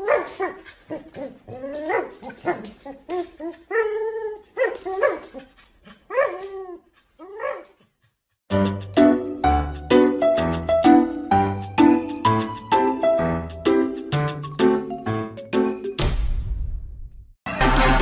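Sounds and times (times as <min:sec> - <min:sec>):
dog whining and yipping: 0:00.0 - 0:07.8.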